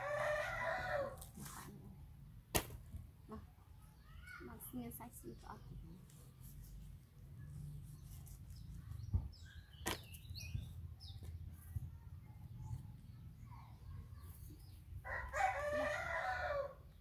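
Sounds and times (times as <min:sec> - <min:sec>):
rooster crowing: 0:00.0 - 0:01.2, 0:15.0 - 0:16.8
small birds chirping: 0:01.6 - 0:17.0.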